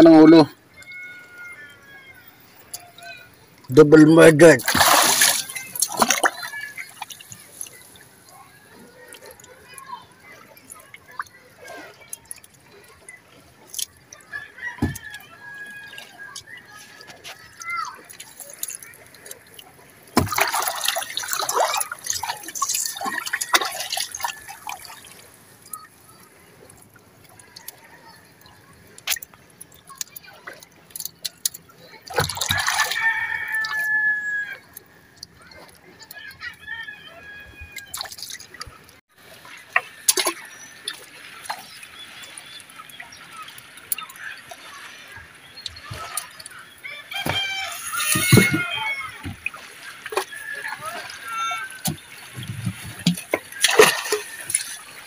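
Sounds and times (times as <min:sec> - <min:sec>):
water splashing and dripping: 0:02.2 - 0:55.0.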